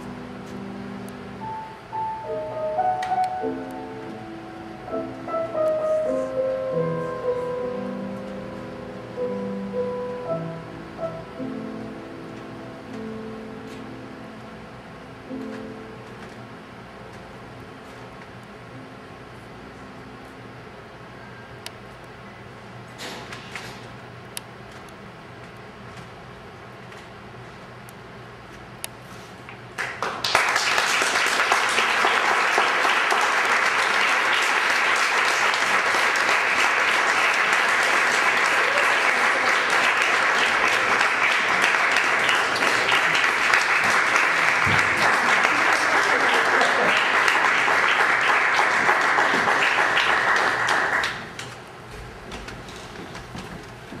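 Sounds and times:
audience applauding: 29.8 - 51.4.

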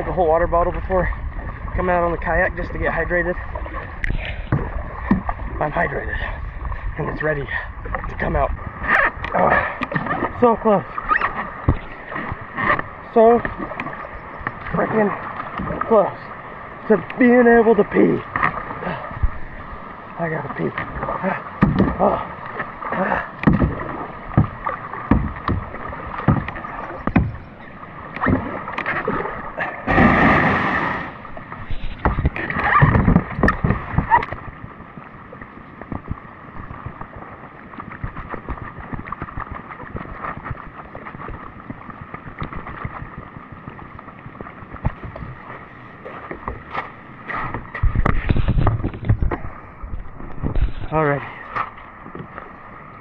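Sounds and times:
water splashing: 0.0 - 53.0
kayak paddle strokes: 7.7 - 53.0
kayak hull grounding on gravel: 29.9 - 34.5.

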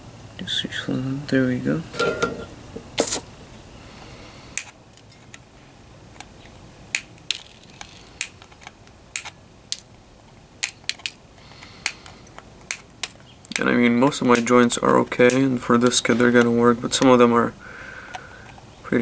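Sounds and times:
side cutters snipping wire: 15.2 - 15.5.

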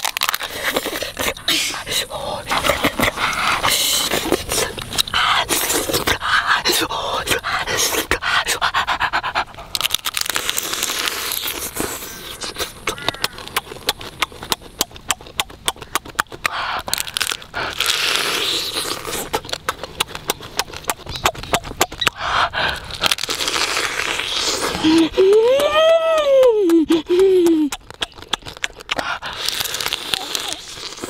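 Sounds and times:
wet sucking and slurping: 0.0 - 25.3, 26.9 - 31.0
man eating crab: 0.0 - 25.8, 26.6 - 31.0
clicking smacks and crunches: 9.7 - 31.0.

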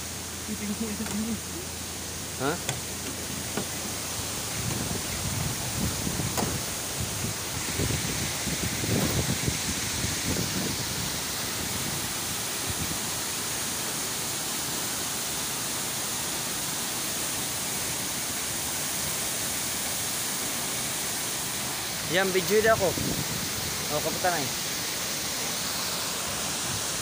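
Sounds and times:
waterfall roaring: 0.0 - 27.0
low rumbling bumps: 0.8 - 11.1.

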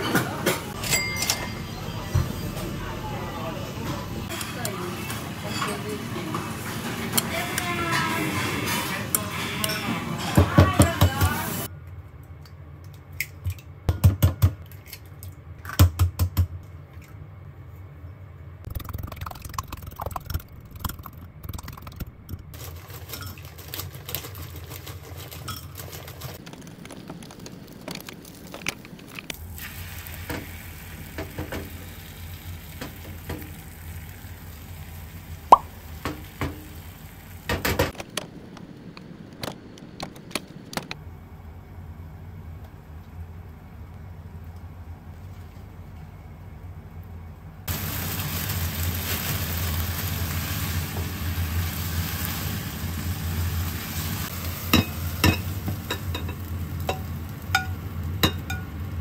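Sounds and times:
eggs beaten in mug clinks: 18.7 - 22.5.

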